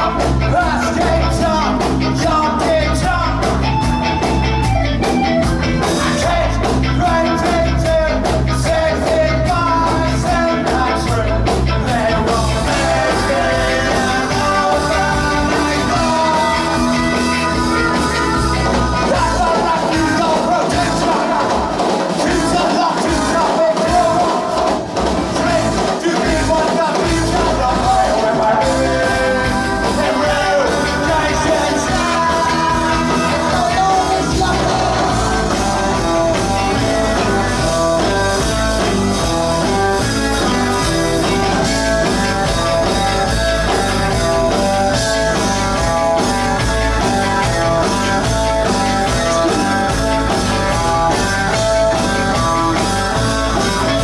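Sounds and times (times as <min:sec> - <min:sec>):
person singing: 0:00.0 - 0:03.6, 0:05.9 - 0:24.8, 0:25.4 - 0:38.2
drums: 0:00.0 - 0:54.0
electric guitars: 0:00.0 - 0:54.0.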